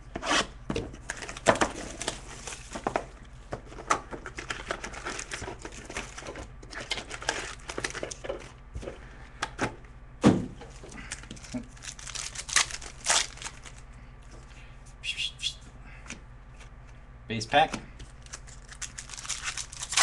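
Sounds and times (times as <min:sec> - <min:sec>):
card packs crinkling: 0:01.0 - 0:03.0, 0:03.7 - 0:08.6, 0:10.7 - 0:13.9, 0:18.0 - 0:20.0
packs tearing open: 0:11.0 - 0:13.8, 0:18.2 - 0:20.0.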